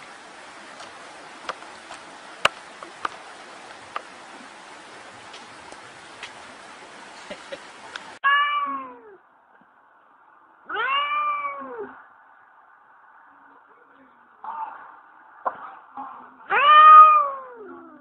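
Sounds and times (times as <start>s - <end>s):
steady hiss: 0.0s - 8.2s
cat meowing: 8.2s - 9.2s, 10.7s - 12.0s, 16.5s - 18.0s.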